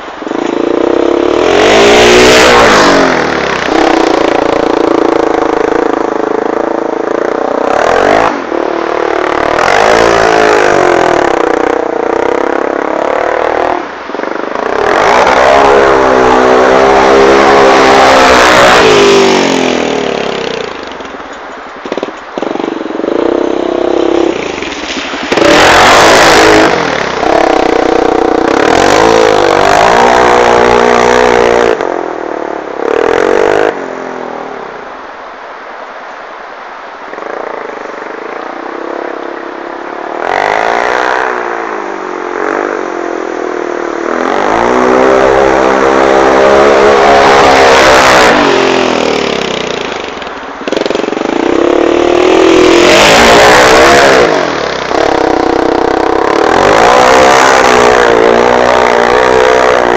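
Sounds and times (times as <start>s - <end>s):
quad engine revving: 0.0s - 21.1s, 21.8s - 32.0s, 32.8s - 33.8s, 40.1s - 59.9s
engine clatter: 44.2s - 59.9s.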